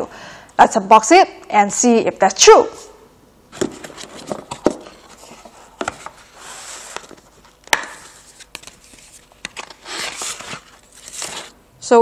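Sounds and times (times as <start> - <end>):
cardboard rubbing and sliding: 3.6 - 7.5, 8.2 - 11.6.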